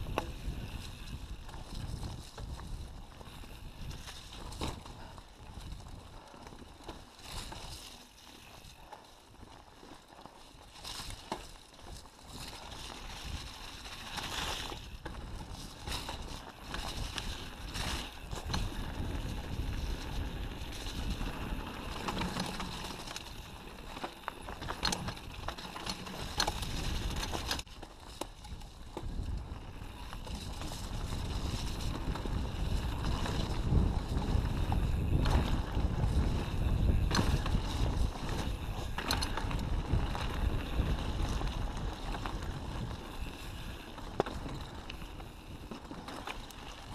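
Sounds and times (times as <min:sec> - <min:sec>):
bike tyres rolling on mud: 0:00.0 - 0:46.9
bike rattling with sharp knocks: 0:09.8 - 0:46.9
wind rushing over microphone: 0:28.9 - 0:45.7.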